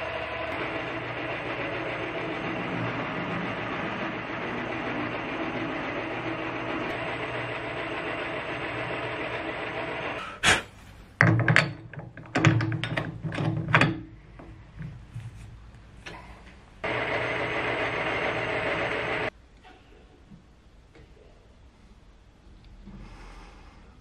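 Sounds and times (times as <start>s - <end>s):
metal lathe drilling: 0.0s - 10.3s, 16.8s - 19.3s
metallic clacks and knocks: 11.2s - 15.0s.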